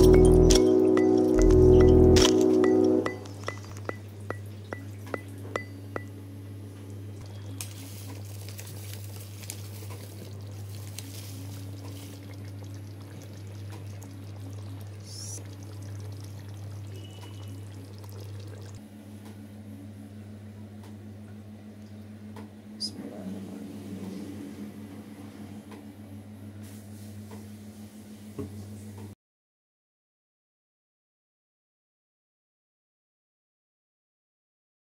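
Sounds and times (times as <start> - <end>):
chime-like ticks: 0.0 - 6.1
low hum: 0.0 - 8.0, 10.2 - 27.6
sauce bubbling in a pan: 7.2 - 18.8.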